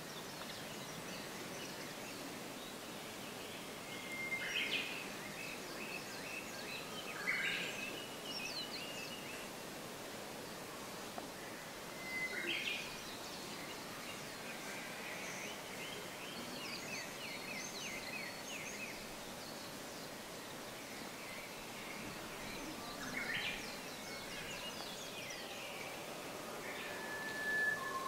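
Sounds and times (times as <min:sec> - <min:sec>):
small birds singing and calling: 0:00.0 - 0:09.7, 0:10.3 - 0:28.0
soft background hiss: 0:00.0 - 0:28.0.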